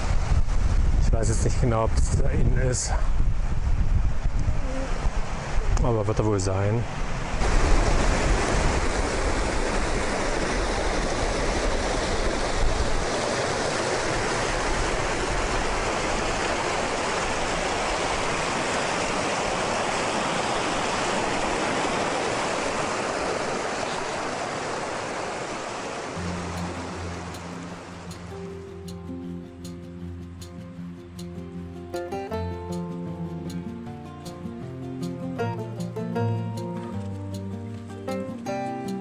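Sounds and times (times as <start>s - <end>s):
mountain brook rushing: 4.7s - 28.1s.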